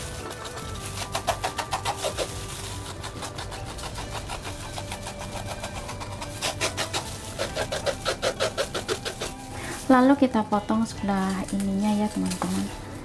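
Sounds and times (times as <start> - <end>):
knife scraping fish scales: 0.0 - 9.8.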